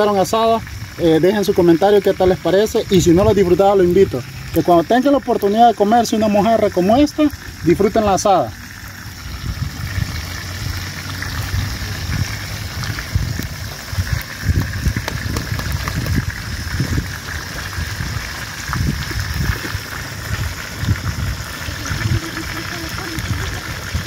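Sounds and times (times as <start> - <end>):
wood fire crackling and hissing: 0.0 - 24.0
low rumbling: 8.5 - 24.0.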